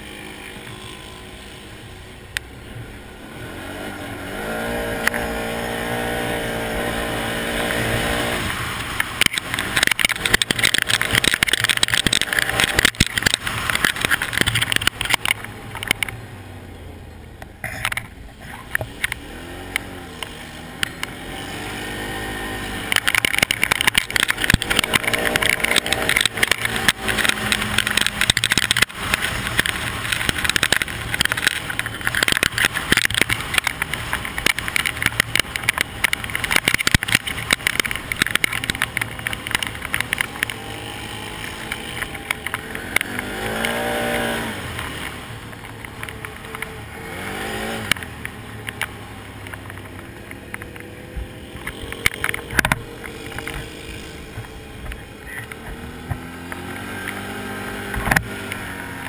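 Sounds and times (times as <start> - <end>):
atv engine running: 0.0 - 59.0.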